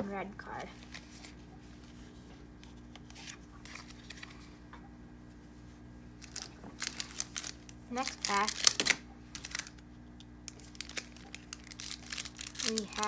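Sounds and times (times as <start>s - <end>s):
faint steady hum: 0.0s - 13.0s
trading cards rustling and tapping: 6.2s - 9.8s.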